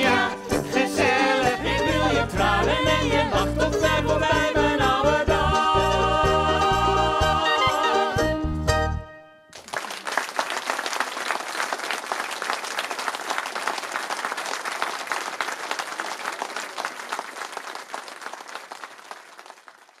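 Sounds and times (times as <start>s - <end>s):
audience applauding: 9.5s - 20.0s.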